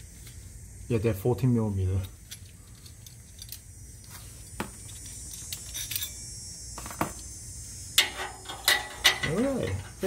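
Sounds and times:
metal parts clinking: 2.0 - 3.7, 4.8 - 6.2.

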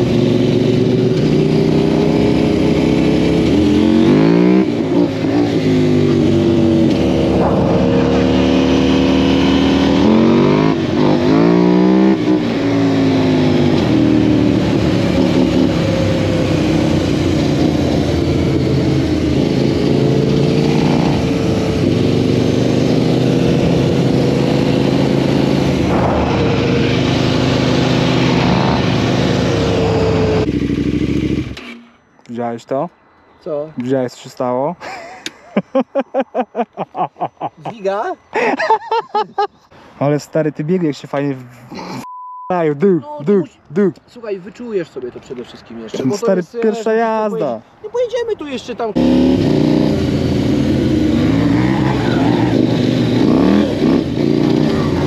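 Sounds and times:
quad engine revving: 0.0 - 31.8, 49.0 - 55.0.

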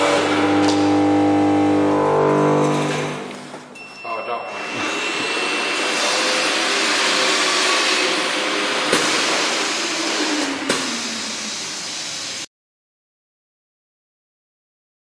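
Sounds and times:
machine winding down tone: 0.0 - 3.3
induction heater rushing noise: 4.8 - 12.5.

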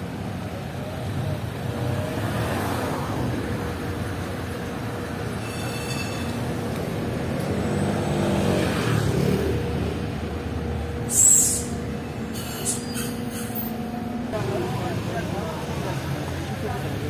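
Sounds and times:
cars and scooters passing: 0.0 - 17.0
bus air brakes hissing: 11.0 - 13.8.

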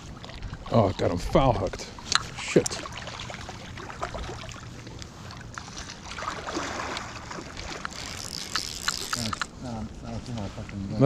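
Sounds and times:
person wading through water: 0.0 - 9.4
fish thrashing in water: 2.0 - 9.5.

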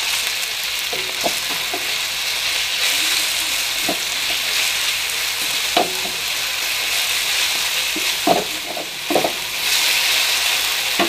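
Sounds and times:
paste sizzling in oil: 0.0 - 11.0
wooden spatula scraping pan: 2.8 - 6.3.

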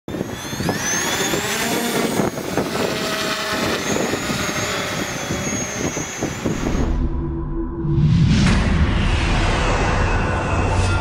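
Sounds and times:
propeller wash rushing: 0.1 - 6.9
quadcopter motors whining: 0.1 - 7.0.

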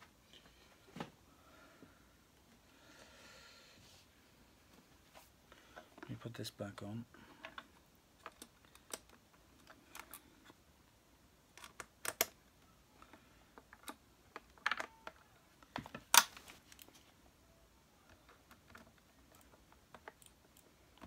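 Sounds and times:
plastic and metal parts clicking: 7.4 - 10.6, 11.5 - 12.4, 13.0 - 16.9, 18.1 - 21.0.

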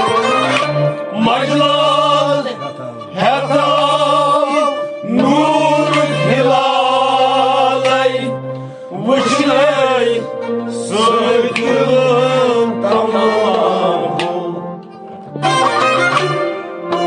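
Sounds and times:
man singing with vibrato: 0.0 - 15.0.

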